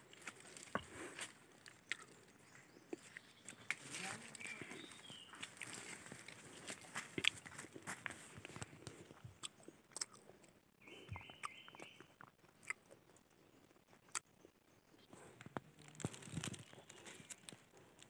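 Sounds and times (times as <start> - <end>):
footsteps crunching on dry leaves: 3.7 - 8.5.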